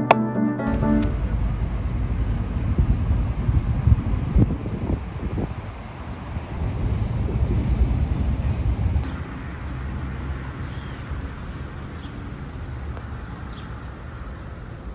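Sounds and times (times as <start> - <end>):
wind buffeting microphone: 1.3 - 9.1
outdoor hiss: 9.0 - 14.9.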